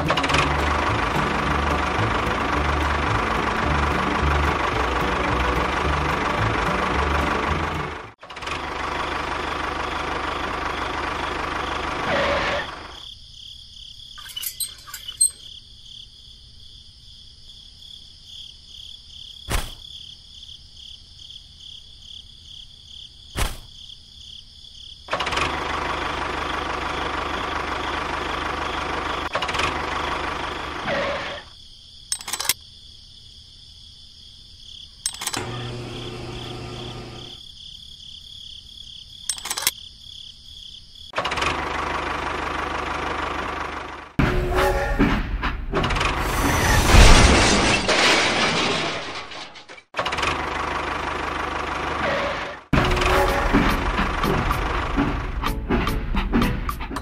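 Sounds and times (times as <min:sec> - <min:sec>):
tractor engine running: 0:00.0 - 0:12.9, 0:25.1 - 0:30.9, 0:35.1 - 0:37.4, 0:41.2 - 0:46.4, 0:50.0 - 0:57.0.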